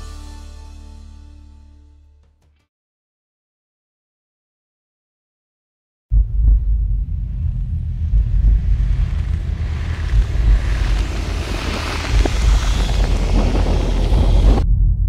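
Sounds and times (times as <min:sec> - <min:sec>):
deep continuous rumble: 0:06.1 - 0:15.0
rushing hiss: 0:08.6 - 0:14.6.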